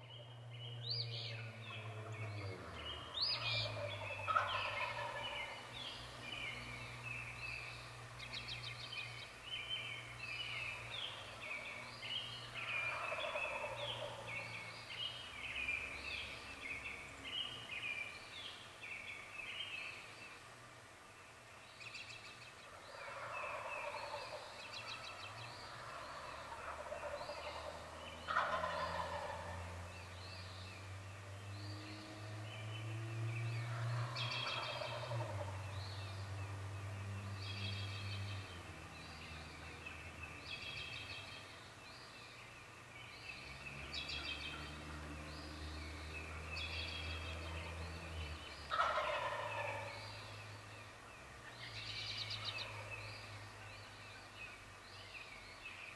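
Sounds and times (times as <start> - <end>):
songbirds chirping: 0.0 - 55.9
turkey gobbling: 3.4 - 5.6, 12.8 - 14.2, 22.8 - 24.5, 25.8 - 29.5, 34.4 - 35.6, 48.7 - 50.0.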